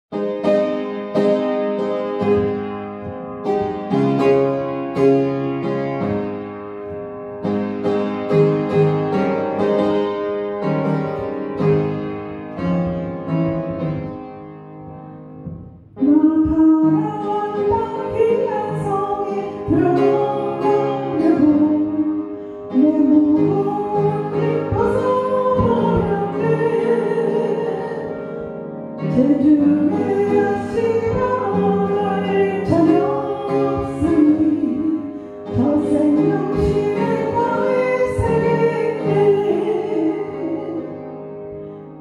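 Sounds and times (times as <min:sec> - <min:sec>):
upright piano playing hymn: 0:00.1 - 0:42.0
woman singing into microphone: 0:16.0 - 0:41.3.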